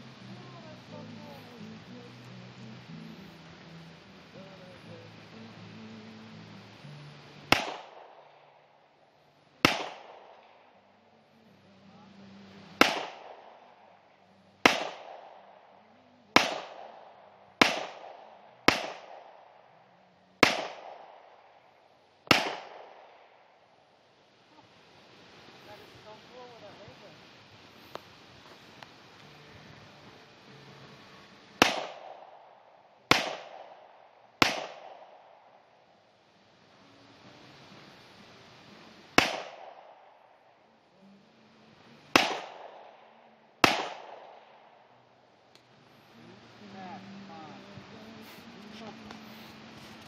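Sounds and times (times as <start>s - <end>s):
pistol shots with echo: 7.5s - 8.6s, 9.6s - 10.7s, 12.8s - 14.0s, 14.6s - 15.7s, 16.3s - 19.7s, 20.4s - 21.6s, 22.2s - 23.4s, 31.6s - 35.6s, 39.2s - 40.4s, 42.1s - 44.8s.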